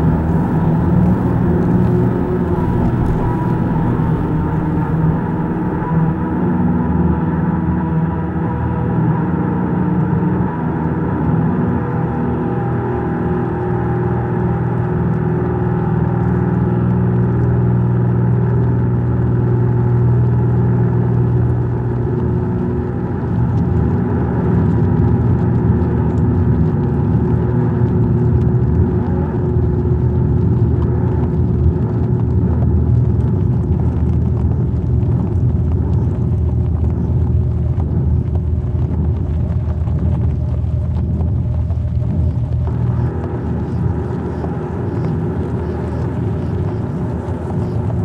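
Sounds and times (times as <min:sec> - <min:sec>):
ambient electronic drone music: 0:00.0 - 0:17.4, 0:40.2 - 0:48.0.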